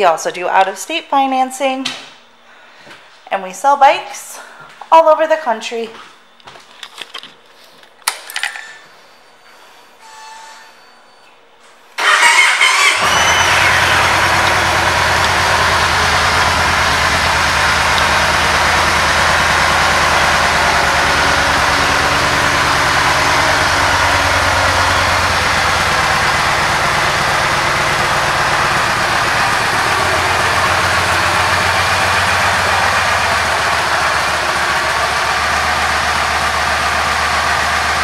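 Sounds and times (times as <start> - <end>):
motorcycle engine idling: 12.0 - 38.0.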